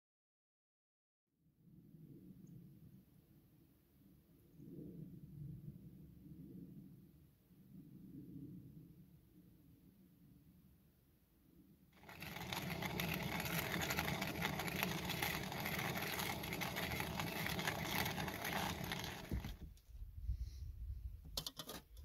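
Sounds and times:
hand coffee grinder grinding: 12.0 - 19.7.

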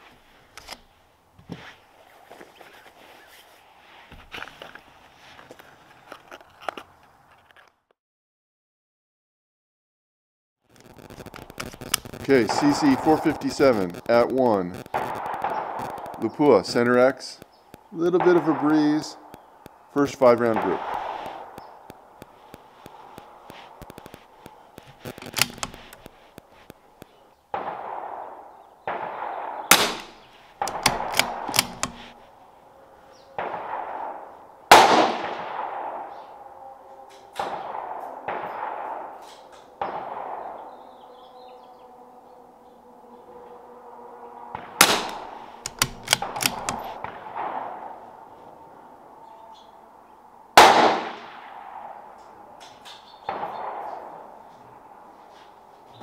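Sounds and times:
rifle bolt clicks: 0.6 - 0.9, 23.8 - 26.2, 29.7 - 32.2, 44.8 - 47.0
rifle shots: 10.9 - 17.1, 18.0 - 19.4, 20.0 - 26.2, 27.5 - 32.2, 33.4 - 36.2, 37.4 - 40.8, 44.6 - 48.0, 50.6 - 52.0.

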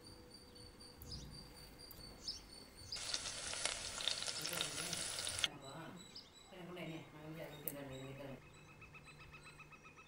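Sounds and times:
food sizzling in hot oil: 3.0 - 5.5.

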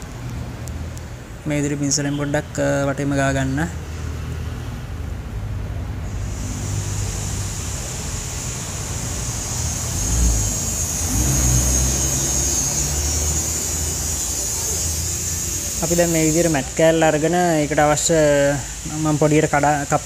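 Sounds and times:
vehicle engine rumbling: 0.0 - 19.9
steady high hiss: 6.0 - 20.0.

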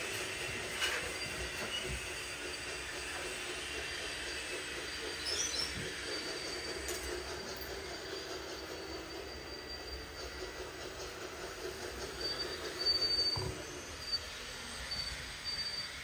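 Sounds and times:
small motors whirring: 0.0 - 16.0
thin high squeal: 0.7 - 2.9, 4.9 - 11.2, 12.0 - 16.0.

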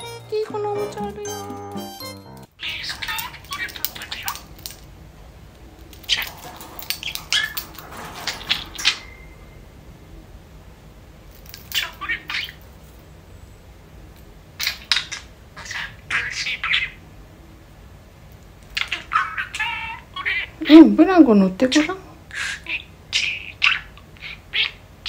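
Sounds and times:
budgerigar chirping: 2.1 - 4.5, 14.6 - 17.0, 22.3 - 24.8
cage toy clinking: 2.6 - 4.9, 5.7 - 9.6, 11.3 - 12.7.

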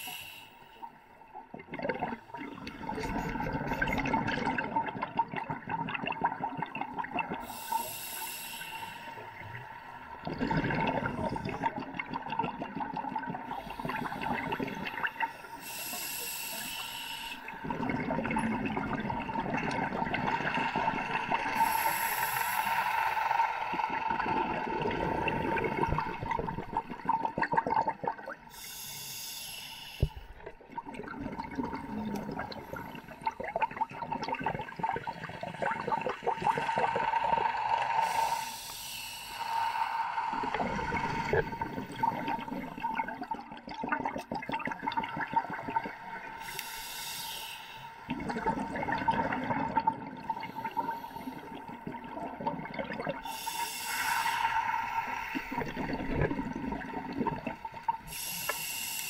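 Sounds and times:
regulator hissing inhalations: 0.0 - 0.9, 7.4 - 9.4, 13.5 - 17.6, 21.3 - 24.2, 28.5 - 30.3, 36.6 - 42.5, 46.3 - 48.1, 50.3 - 51.6, 53.2 - 56.0, 58.0 - 59.0
bubbling exhalation: 1.6 - 7.7, 10.2 - 15.2, 17.6 - 22.6, 30.4 - 38.3, 39.8 - 46.5, 48.1 - 58.8.

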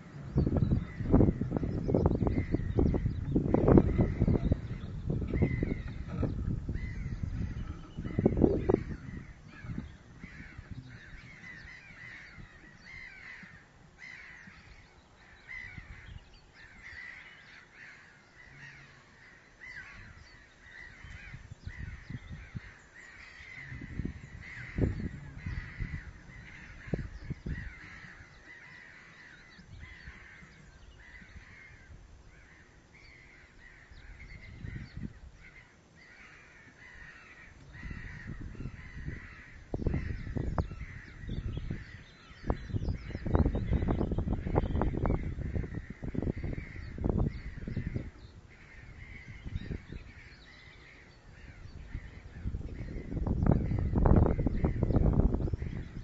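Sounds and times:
osprey chirping calls: 0.0 - 56.0.

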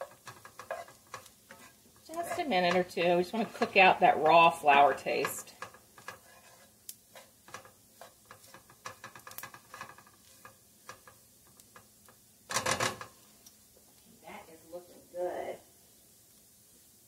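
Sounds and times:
utensil clattering in a pot: 0.0 - 13.2
utensil scraping a pot: 0.0 - 13.3.

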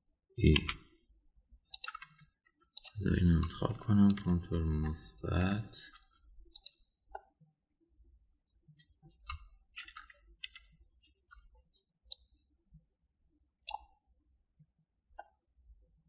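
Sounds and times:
keyboard and mouse clicks: 1.7 - 5.0, 5.9 - 7.4, 8.8 - 12.4, 13.6 - 14.0, 15.2 - 15.4.

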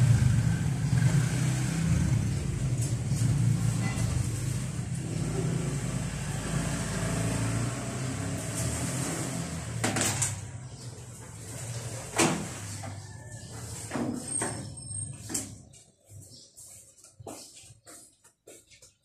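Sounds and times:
scooter engine idling: 0.0 - 6.9.

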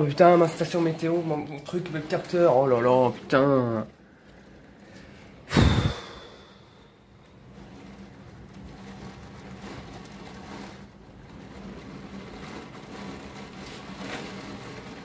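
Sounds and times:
heavy rain pouring: 0.0 - 15.0
wind gusts: 5.5 - 7.6.

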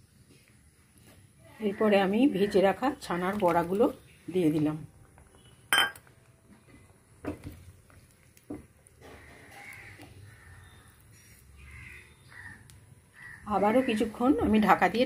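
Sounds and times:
crows cawing: 9.0 - 14.1.

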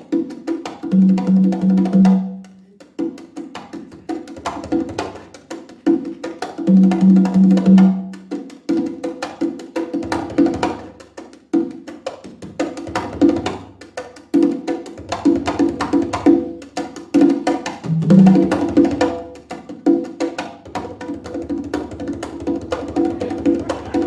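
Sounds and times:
congas played by hand: 0.0 - 24.0
ringing low conga tones: 0.8 - 2.6, 6.6 - 8.4, 17.8 - 20.1.

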